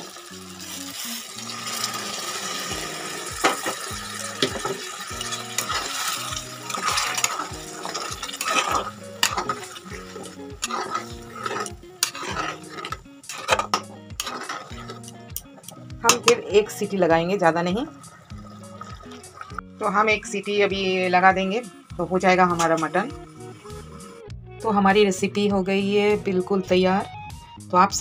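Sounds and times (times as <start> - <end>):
water hissing in hot pot: 0.0 - 13.6, 17.4 - 19.6, 20.8 - 24.2
soft background music: 0.0 - 28.0
spatula scraping pot: 1.6 - 16.7.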